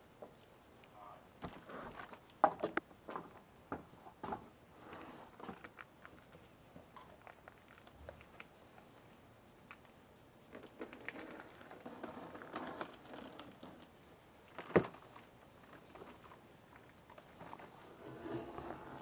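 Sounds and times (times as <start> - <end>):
plastic wrap rustling and crinkling: 10.5 - 19.0.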